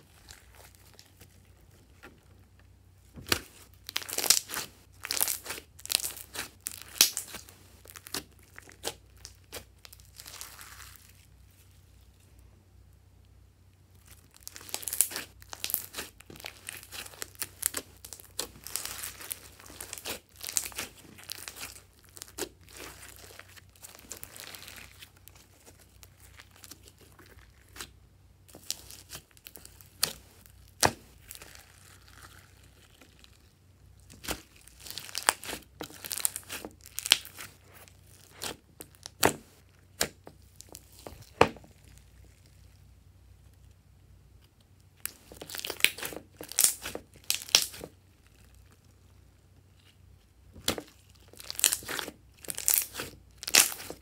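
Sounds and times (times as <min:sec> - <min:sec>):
slime crackling wetly: 0:00.0 - 0:12.2, 0:13.9 - 0:43.7, 0:44.3 - 0:54.0.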